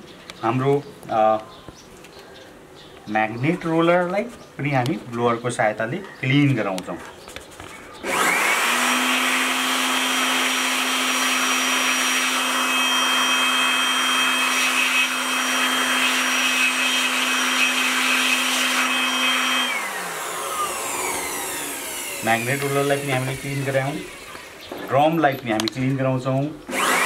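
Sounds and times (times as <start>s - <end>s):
electric air blower motor whine: 8.0s - 24.8s, 26.7s - 27.0s.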